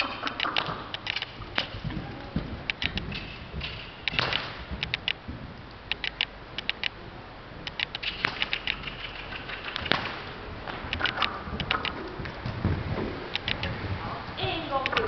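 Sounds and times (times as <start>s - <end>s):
horse hoofbeats cantering on sand: 0.0s - 5.9s, 7.5s - 15.0s
sharp knocks: 0.3s - 5.2s, 7.6s - 13.7s.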